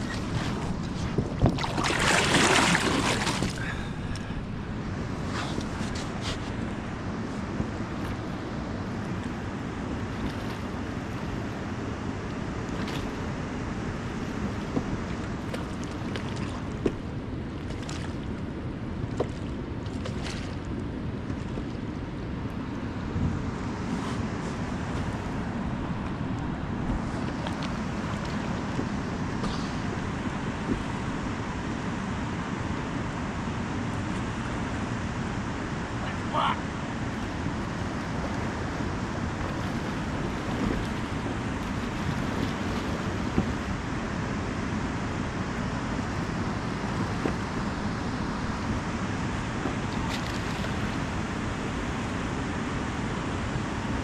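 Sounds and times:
faint water splashes: 0:00.0 - 0:11.7, 0:14.0 - 0:22.7, 0:23.9 - 0:31.6, 0:35.9 - 0:53.0
river water flowing: 0:00.0 - 0:54.0
wind: 0:00.0 - 0:54.0.

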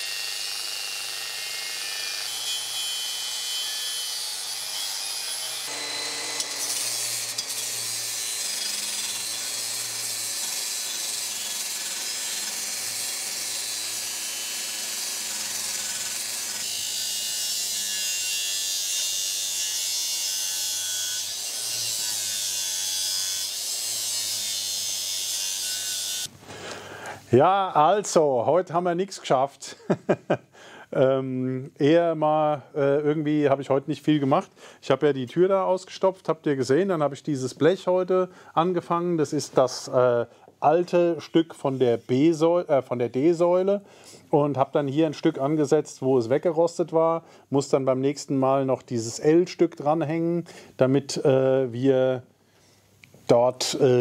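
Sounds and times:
power tool scouring metal: 0:00.0 - 0:26.3.

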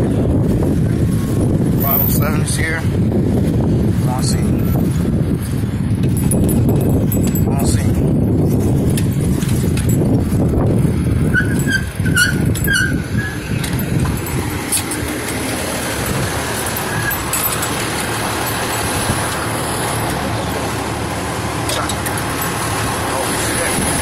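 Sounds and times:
diesel engine rumbling: 0:00.0 - 0:24.0
rushing street noise: 0:00.0 - 0:24.0
short high squeaks: 0:11.2 - 0:15.1, 0:16.0 - 0:19.1.

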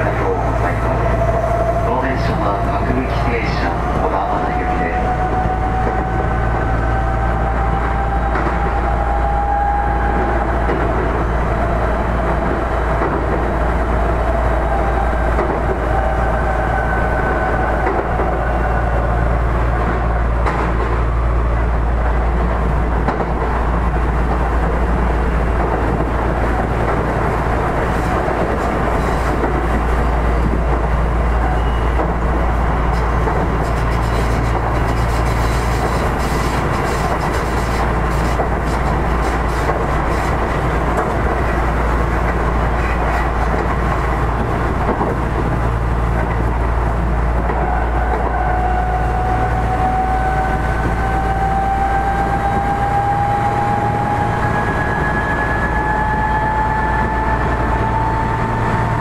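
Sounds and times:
train wheels rumbling on rail: 0:00.0 - 0:59.0
clatter over rail joints: 0:32.9 - 0:45.6.

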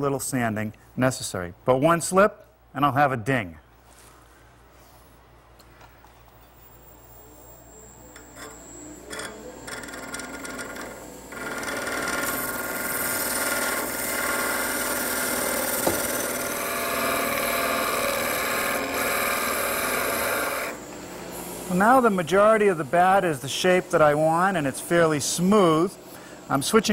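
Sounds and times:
wood lathe spinning: 0:08.1 - 0:20.9
chisel cutting spinning wood: 0:08.2 - 0:20.8.

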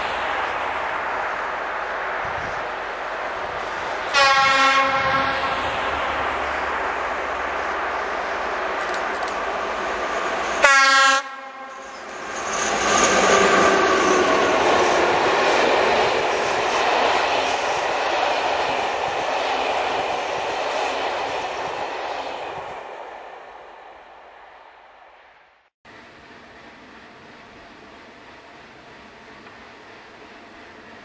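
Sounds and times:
train passing with wheel noise: 0:00.0 - 0:31.0
train horn blast: 0:04.1 - 0:05.9, 0:10.6 - 0:12.0.

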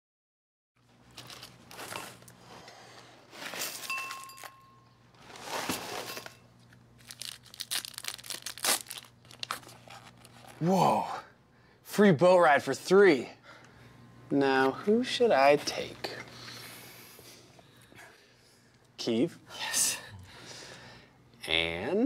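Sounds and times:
paper rustling and crinkling: 0:00.8 - 0:02.4, 0:05.2 - 0:06.4, 0:07.0 - 0:10.6.

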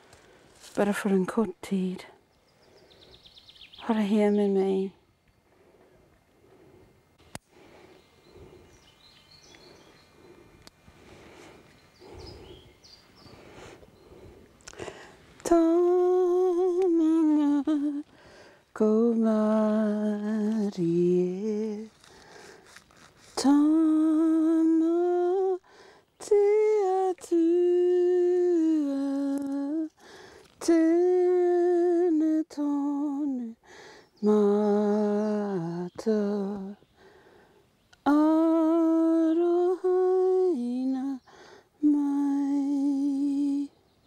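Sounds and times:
woman singing a chanted prayer: 0:00.7 - 0:02.2, 0:03.6 - 0:05.0, 0:15.4 - 0:22.1, 0:23.2 - 0:30.0, 0:30.6 - 0:36.9, 0:38.0 - 0:43.9.

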